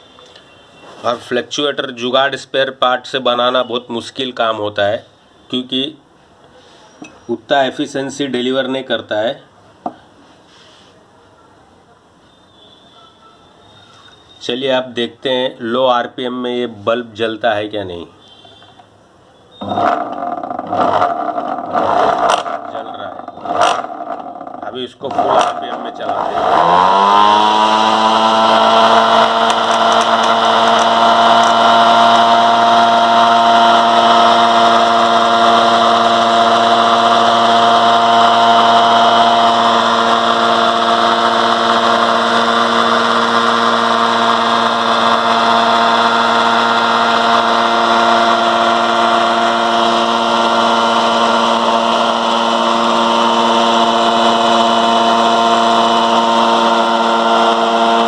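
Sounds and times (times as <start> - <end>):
generator whine: 18.2 - 58.0.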